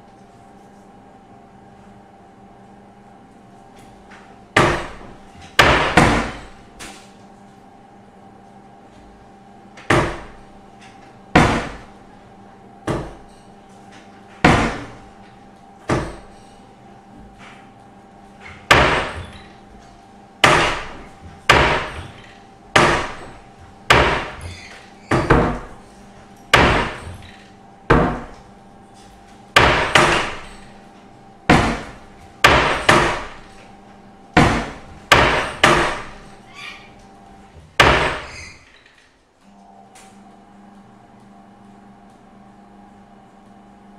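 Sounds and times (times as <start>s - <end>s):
wooden door slamming: 23.9s - 25.7s, 37.8s - 38.6s.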